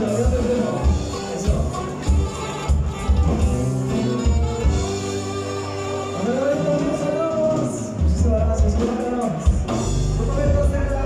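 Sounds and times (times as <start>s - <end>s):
bass line: 0.0s - 11.0s
live dance band: 0.0s - 11.0s
person singing: 5.6s - 9.6s.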